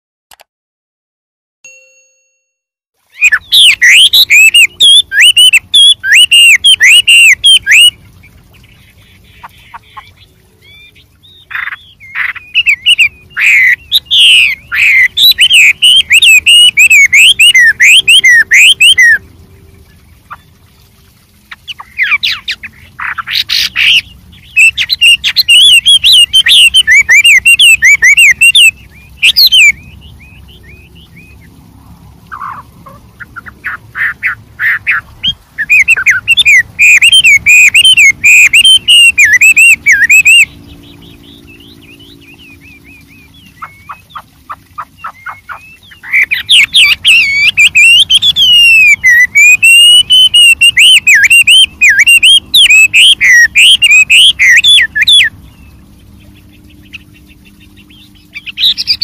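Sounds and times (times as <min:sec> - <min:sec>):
bird singing whistled phrases: 0:03.1 - 0:08.0, 0:10.6 - 0:19.2, 0:22.0 - 0:31.4, 0:34.2 - 0:44.2, 0:44.8 - 0:55.7, 0:57.6 - 0:59.0
short bird calls: 0:32.3 - 0:59.0.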